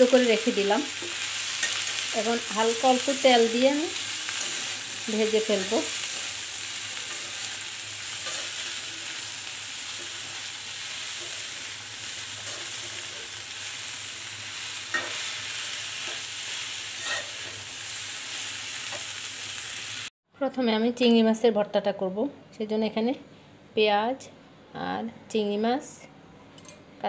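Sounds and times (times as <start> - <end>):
beans sizzling in oil: 0.0 - 20.1.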